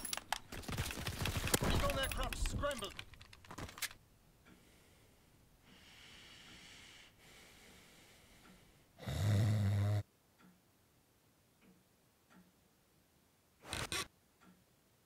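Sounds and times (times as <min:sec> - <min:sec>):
soft breaths: 0:04.4 - 0:10.0
man snoring: 0:09.0 - 0:10.0.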